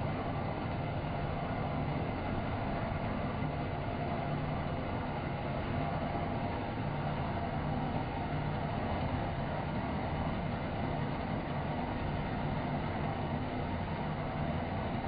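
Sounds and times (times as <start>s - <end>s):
low motor hum: 0.0s - 15.0s.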